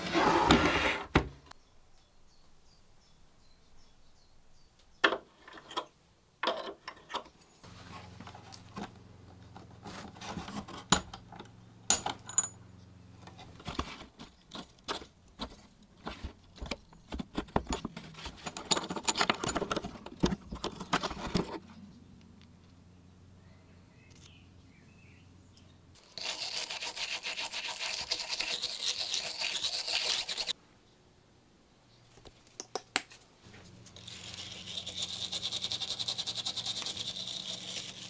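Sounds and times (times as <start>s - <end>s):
metal tool scraping and prying: 17.5s - 21.0s.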